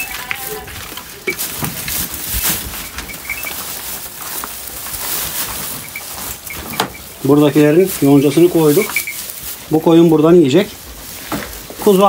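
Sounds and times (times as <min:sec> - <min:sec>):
hay rustling and crackling: 0:00.0 - 0:12.0
high bird chirps: 0:02.8 - 0:03.6, 0:05.8 - 0:07.2, 0:08.8 - 0:09.3.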